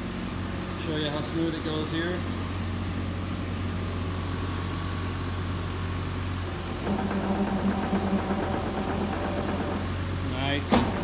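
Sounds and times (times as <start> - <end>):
diesel engine running: 0.0 - 11.0
uneven pulsing rumble: 6.4 - 10.1.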